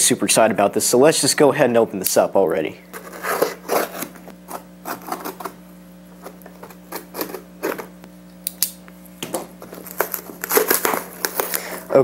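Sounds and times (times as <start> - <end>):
knife slicing packing tape: 3.2 - 5.6, 9.8 - 11.7.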